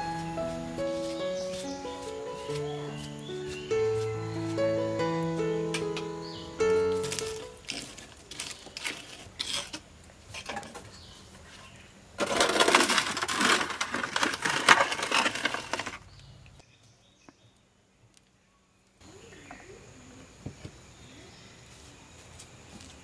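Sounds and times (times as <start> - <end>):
metal tray scraping on brick: 7.6 - 9.8, 12.2 - 16.0.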